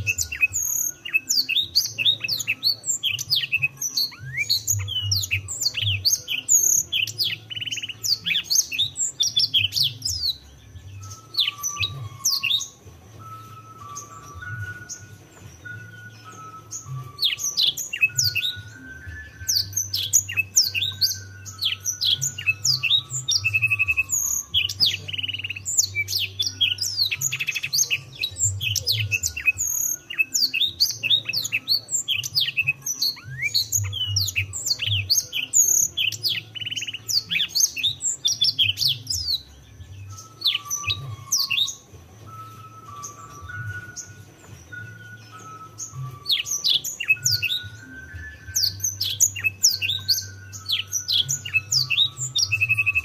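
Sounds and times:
canary singing: 0:00.0 - 0:53.0
low steady melody: 0:00.0 - 0:53.0.

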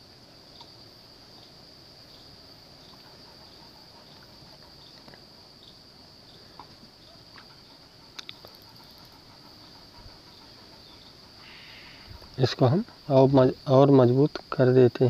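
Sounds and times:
light ticks and clicks: 0:08.1 - 0:09.1.

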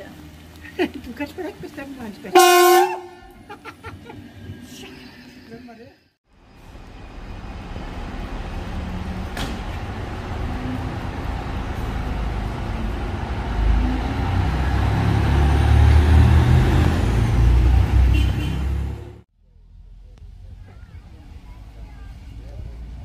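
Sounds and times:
diesel train running past: 0:06.3 - 0:19.2.

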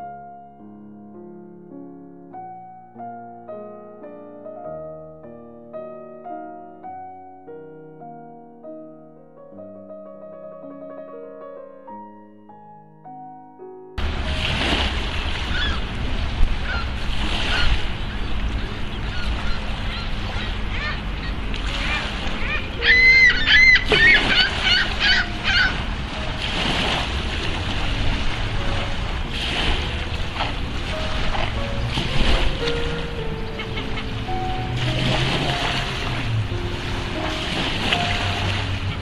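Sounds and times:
soft piano music: 0:00.0 - 0:39.0
wind buffeting microphone: 0:14.0 - 0:39.0
bird calling: 0:15.4 - 0:26.4, 0:32.5 - 0:39.0.

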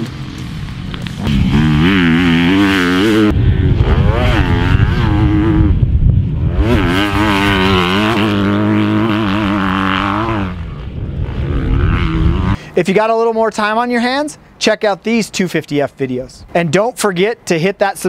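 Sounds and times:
motocross engine revving: 0:00.0 - 0:12.6.

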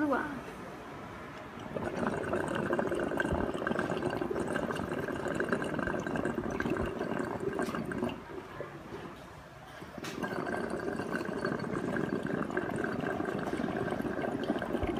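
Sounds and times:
water bubbling through bong: 0:01.4 - 0:14.9.

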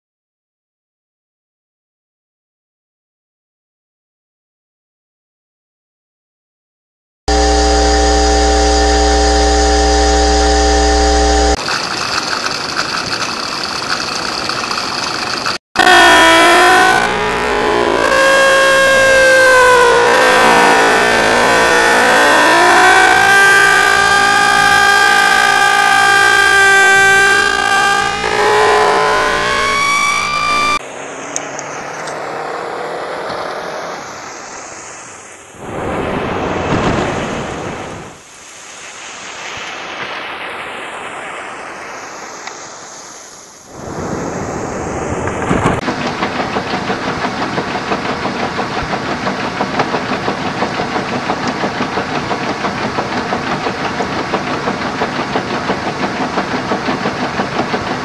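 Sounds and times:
siren wailing: 0:07.3 - 0:11.6, 0:15.8 - 0:30.8
rough fluttering machine noise: 0:07.3 - 0:32.6, 0:43.7 - 0:58.0
mechanical hum with deep drone: 0:07.3 - 0:34.1
steady rushing noise: 0:28.1 - 0:58.0.

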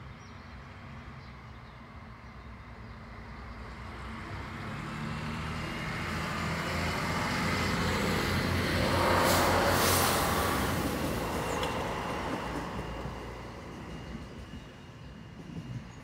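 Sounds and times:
diesel railcar engine hum: 0:00.0 - 0:16.0
train wheels rushing on rails: 0:03.8 - 0:16.0.

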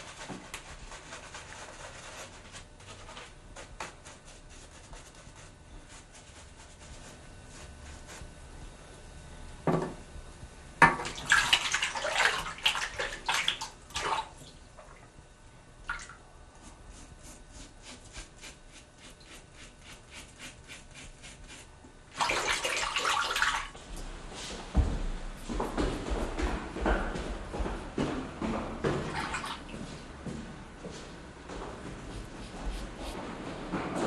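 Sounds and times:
water splashing in sink: 0:10.8 - 0:15.1, 0:15.8 - 0:16.2, 0:22.1 - 0:23.8, 0:28.9 - 0:29.7.

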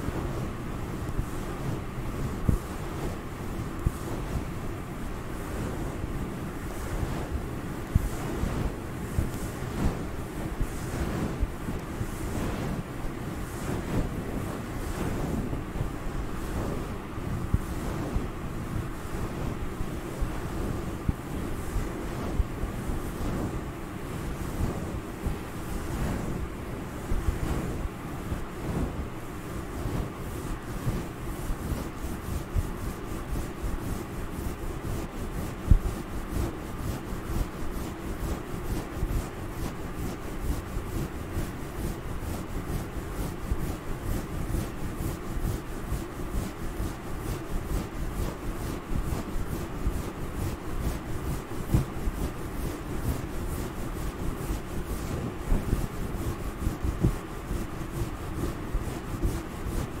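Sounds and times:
fingertips scratching fuzzy material: 0:27.1 - 1:00.0.

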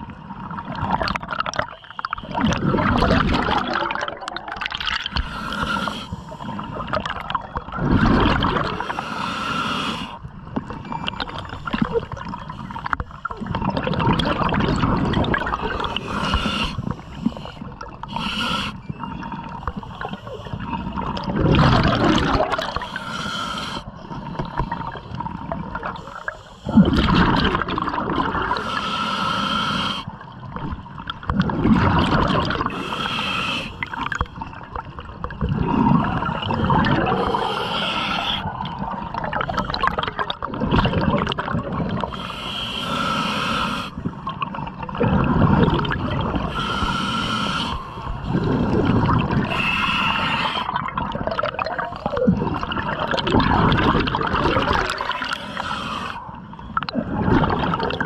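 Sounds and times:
gurgling exhaled bubbles: 0:00.0 - 0:09.0, 0:10.2 - 0:23.0, 0:23.9 - 0:28.7, 0:30.1 - 0:42.3, 0:43.4 - 0:58.0
regulator hiss on inhale: 0:05.1 - 0:06.7, 0:08.8 - 0:10.2, 0:15.8 - 0:18.9, 0:22.7 - 0:23.9, 0:28.5 - 0:30.2, 0:32.7 - 0:34.1, 0:37.1 - 0:38.6, 0:42.0 - 0:44.1, 0:46.4 - 0:48.8, 0:49.4 - 0:50.8, 0:55.1 - 0:56.6.

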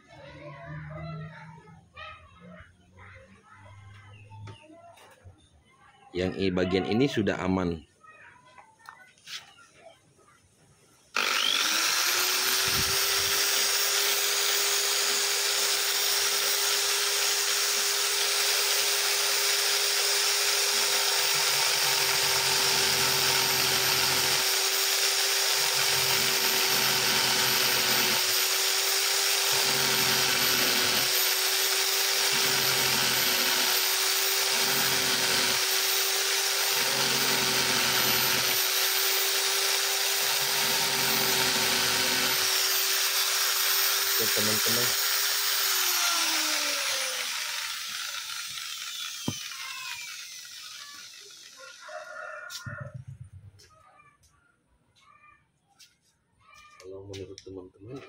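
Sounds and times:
electric drill whining: 0:11.1 - 0:51.8.

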